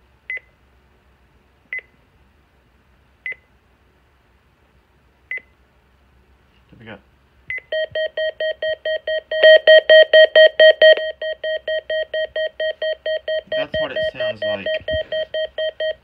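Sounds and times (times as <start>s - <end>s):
rapid electronic alert beeping: 7.7s - 16.0s.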